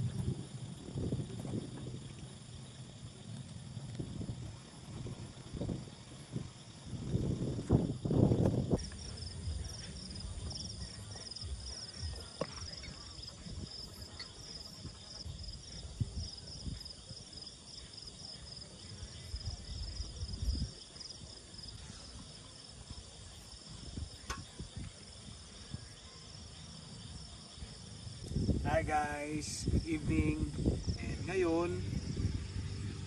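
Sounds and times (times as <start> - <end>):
night insects trilling: 0.0 - 33.0
wind rumble on microphone: 0.0 - 33.0.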